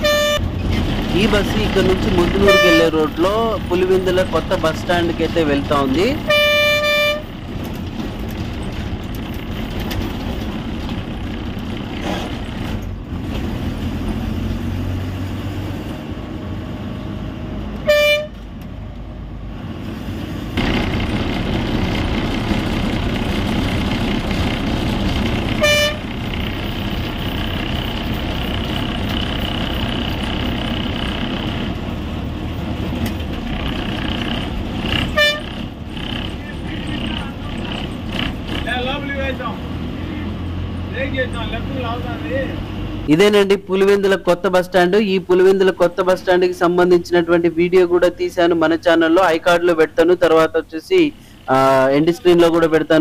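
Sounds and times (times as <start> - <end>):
bus horn honks: 0.0 - 0.6, 1.8 - 3.2, 6.1 - 7.4, 17.8 - 18.5, 25.5 - 26.2, 35.0 - 35.6
bus engine and road noise: 0.0 - 53.0.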